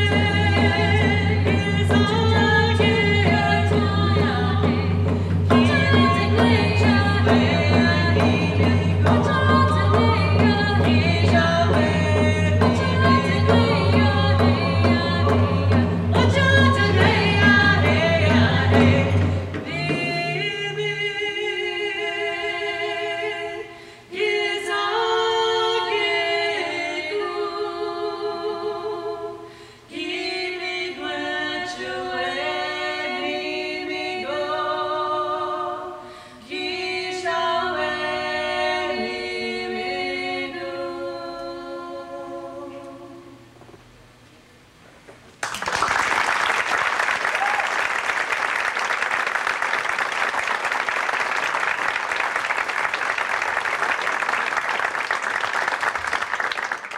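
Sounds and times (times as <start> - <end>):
hand drums beating: 0.0 - 20.5
two women singing together: 0.0 - 43.6.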